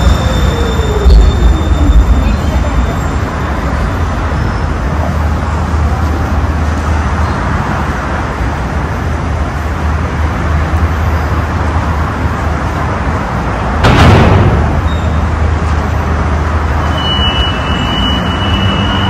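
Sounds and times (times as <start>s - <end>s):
vehicle running rumble: 0.0s - 16.9s.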